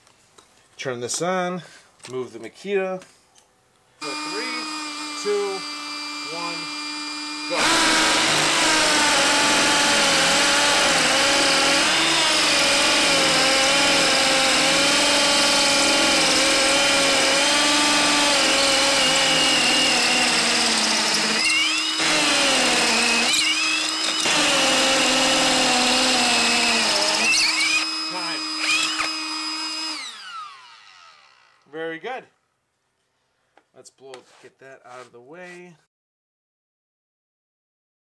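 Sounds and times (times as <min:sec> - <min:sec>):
hammer drill boring into concrete: 0:04.0 - 0:31.7.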